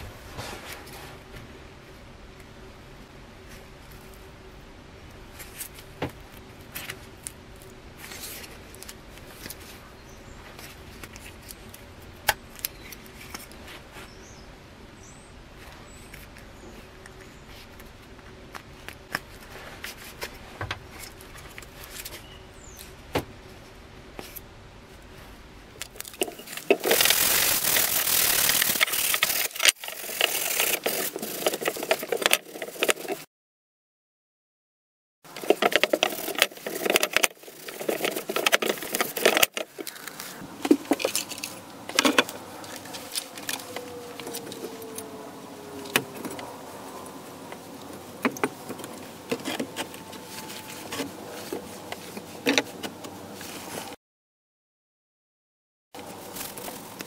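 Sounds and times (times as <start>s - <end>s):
faint steady hum: 0.0s - 33.2s
small clicks and scrapes: 10.4s - 14.1s, 25.8s - 33.3s, 35.3s - 45.1s, 47.5s - 54.0s.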